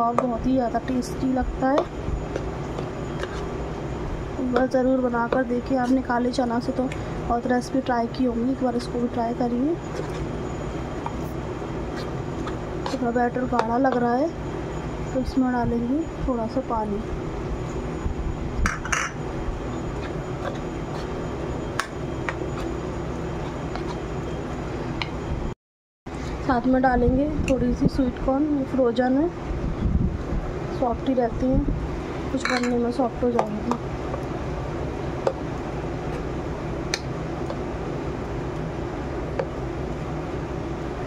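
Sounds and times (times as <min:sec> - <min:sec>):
steady low hum: 0:00.0 - 0:41.0
spoon clinking against bowl: 0:32.4 - 0:32.8.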